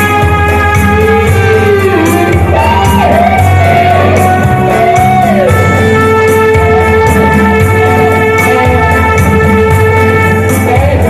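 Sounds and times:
guitar: 0.0s - 11.0s
keyboard: 0.0s - 11.0s
steady beat: 0.0s - 11.0s.

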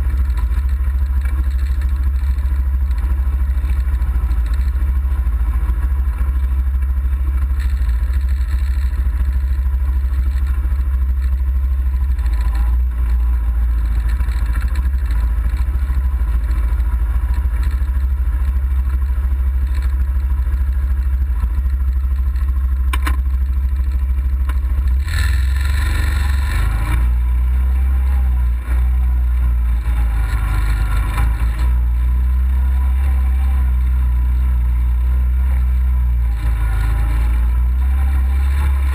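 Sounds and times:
off-road vehicle engine rumbling: 0.0s - 38.9s
sharp click: 22.9s - 23.2s.

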